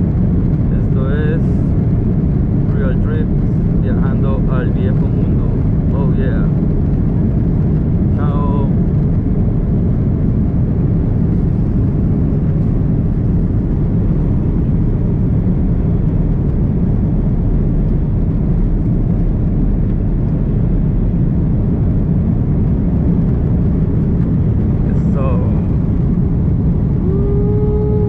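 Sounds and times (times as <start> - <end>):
aircraft rolling noise: 0.0 - 28.0
jet airliner engine rumble: 0.0 - 28.0.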